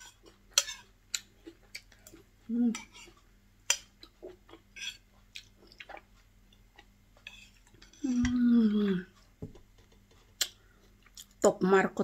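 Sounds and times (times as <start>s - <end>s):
person humming mmm: 8.0s - 9.2s.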